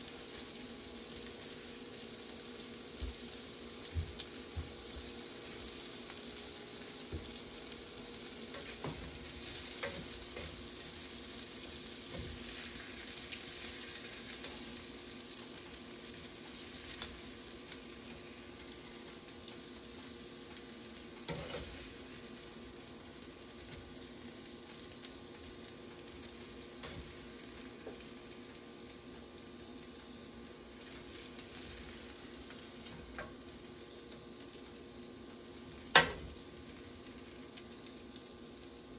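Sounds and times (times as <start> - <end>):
food sizzling in frying pan: 0.0 - 38.9.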